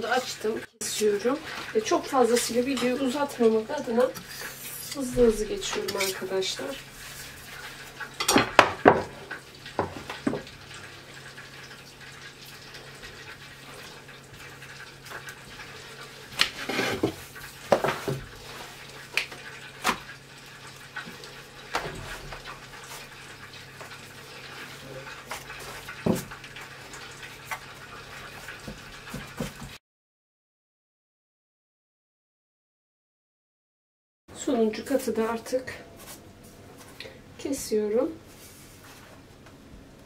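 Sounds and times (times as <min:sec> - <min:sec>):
dough knocks and rustles: 0:25.2 - 0:26.4, 0:28.4 - 0:29.8.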